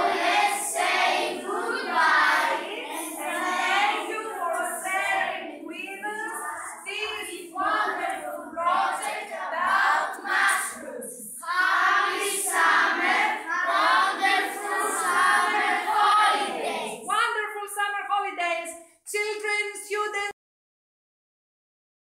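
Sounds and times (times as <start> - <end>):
children singing together: 0.0 - 17.1.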